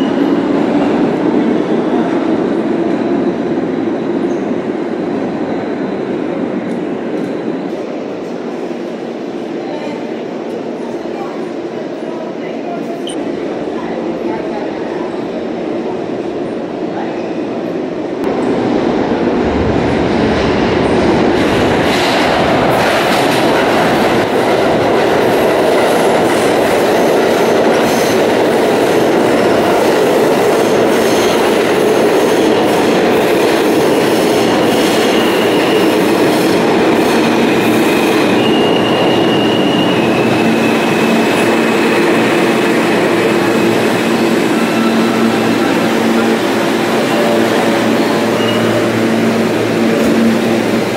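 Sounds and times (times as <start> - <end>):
subway train wheels running: 0.0 - 50.9.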